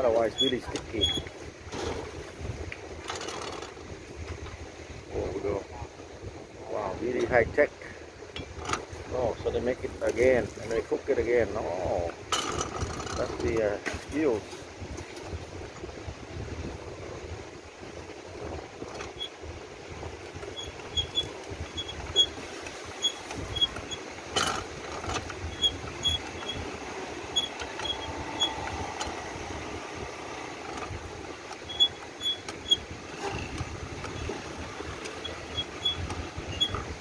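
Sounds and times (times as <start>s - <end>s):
hand-cranked press clicking and clacking: 20.5s - 26.8s, 30.6s - 37.0s.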